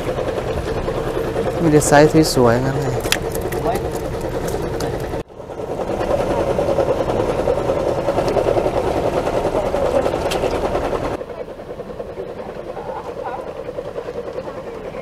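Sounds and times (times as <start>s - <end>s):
small engine droning: 0.0s - 15.0s.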